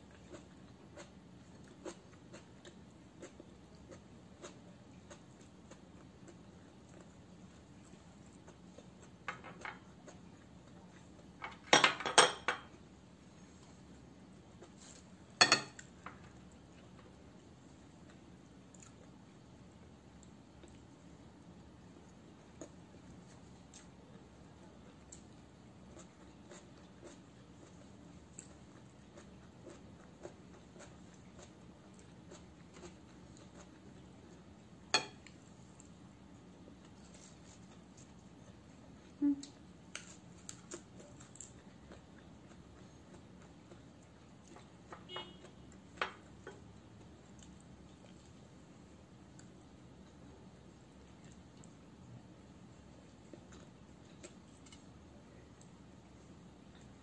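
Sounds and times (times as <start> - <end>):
plates clinking on glass table: 11.4 - 12.7, 15.4 - 15.8, 34.9 - 35.2.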